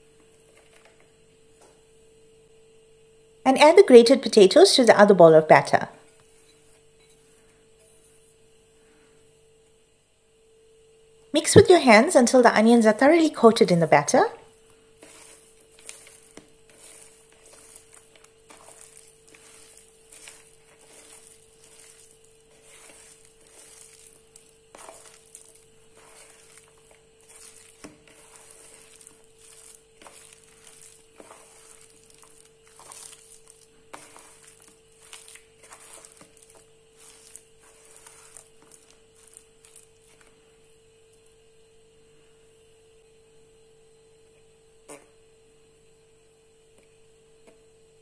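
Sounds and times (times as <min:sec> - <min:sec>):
faint steady hum: 0:00.0 - 0:48.0
wet squelching of batter mixing: 0:11.6 - 0:41.7.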